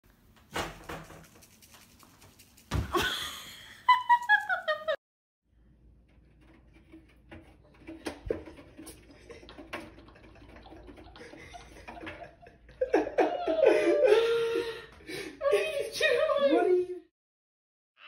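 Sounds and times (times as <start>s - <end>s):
kitten paws scrabbling on metal: 6.0s - 10.1s.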